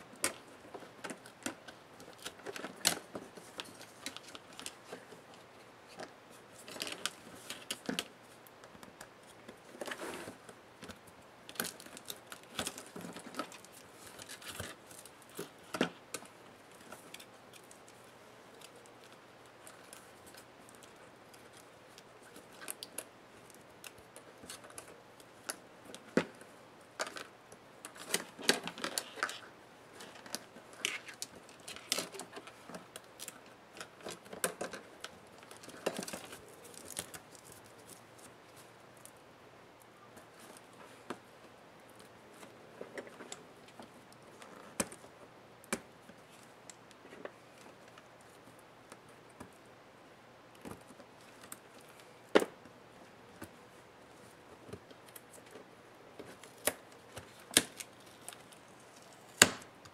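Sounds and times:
hands handling laptop parts: 0.0s - 39.2s, 39.8s - 49.7s, 50.5s - 59.9s.

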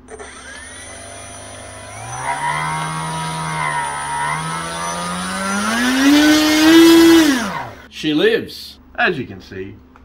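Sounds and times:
electric motor propeller whine: 0.0s - 7.9s.

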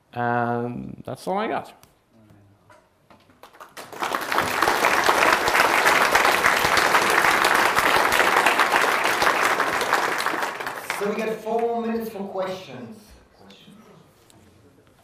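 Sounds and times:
audience applauding: 3.4s - 11.9s.

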